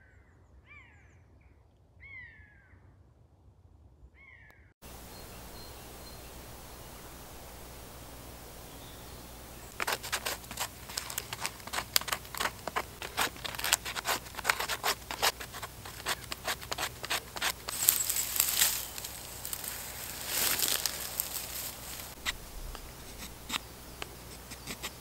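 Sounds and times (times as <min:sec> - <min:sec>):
dry bracken rustling: 0:04.8 - 0:25.0
knife scraping bark: 0:08.9 - 0:25.0.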